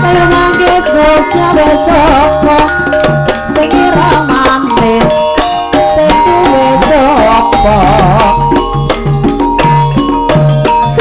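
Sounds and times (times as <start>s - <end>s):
ringing metallophone notes: 0.0s - 11.0s
wavering ornamented melody: 0.0s - 11.0s.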